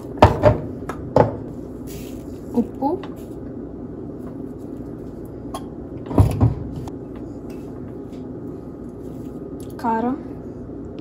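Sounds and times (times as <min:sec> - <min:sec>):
steady low hum: 0:00.0 - 0:11.0
dull knocks of kitchen items: 0:00.2 - 0:01.5.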